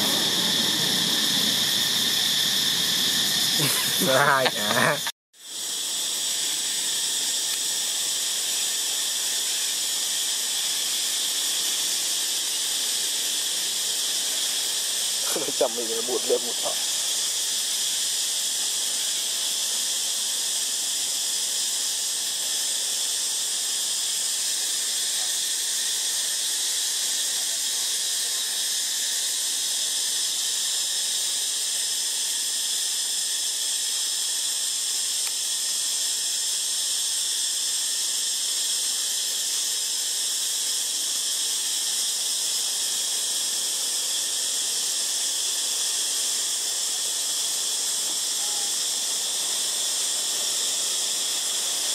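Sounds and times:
shrill high-pitched hiss: 0:00.0 - 0:51.9.

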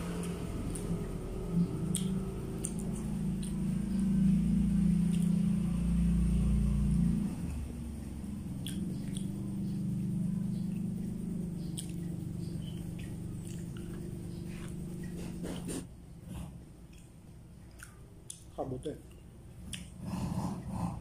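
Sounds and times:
chewing clicks: 0:00.0 - 0:05.6, 0:08.0 - 0:15.3, 0:16.9 - 0:20.0
vehicle engine running: 0:00.0 - 0:16.6.

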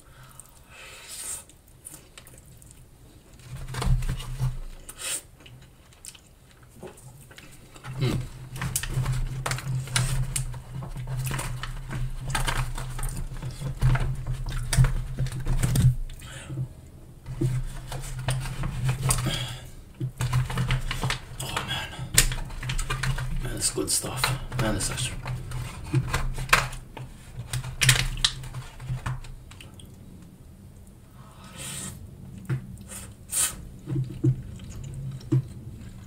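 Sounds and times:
aluminium foil tray crinkling: 0:01.9 - 0:16.2, 0:17.2 - 0:29.6
chewing with wet mouth clicks: 0:05.4 - 0:07.5, 0:34.0 - 0:36.0.

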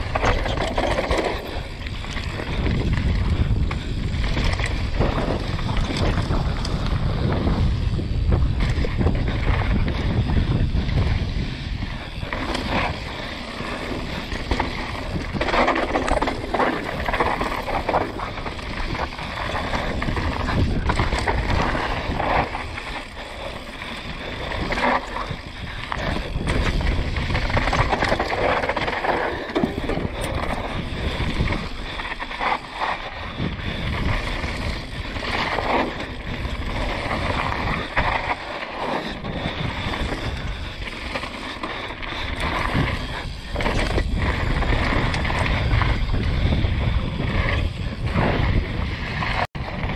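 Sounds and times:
bike rattling and knocking: 0:00.0 - 0:49.9
bike tyres rolling on dirt: 0:00.0 - 0:49.9
wind on microphone: 0:00.0 - 0:49.9.

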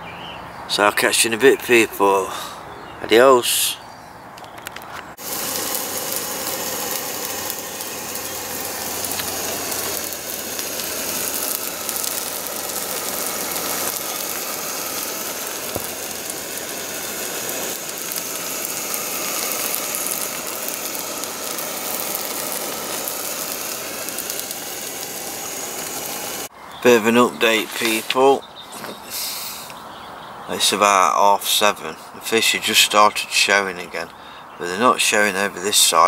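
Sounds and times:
gas stove burner hissing: 0:05.1 - 0:28.3, 0:29.0 - 0:29.8
food steaming and crackling: 0:05.1 - 0:29.9.

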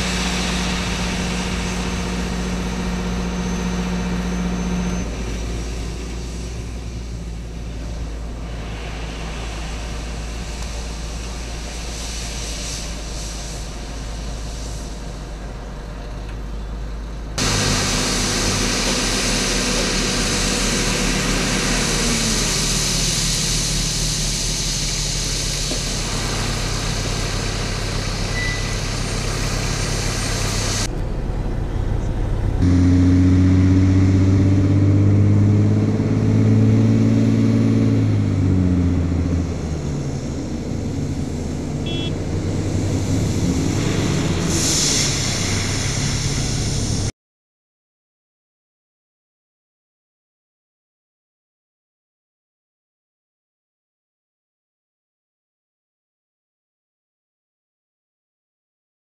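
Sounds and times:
louder truck engine revving: 0:00.0 - 0:12.8, 0:17.4 - 0:47.1
dump truck diesel engines: 0:00.0 - 0:47.1.

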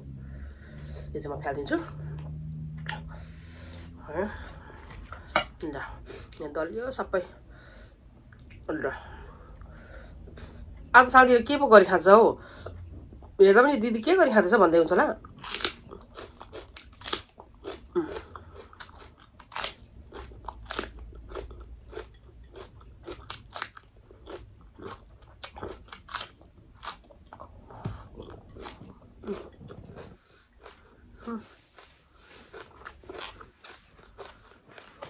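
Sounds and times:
person chewing crunchy food: 0:01.8 - 0:05.6, 0:15.2 - 0:35.0.

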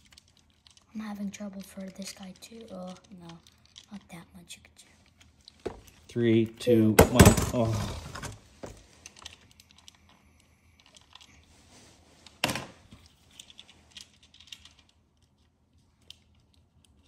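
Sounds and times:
plastic clicks and rattles: 0:00.0 - 0:04.1.

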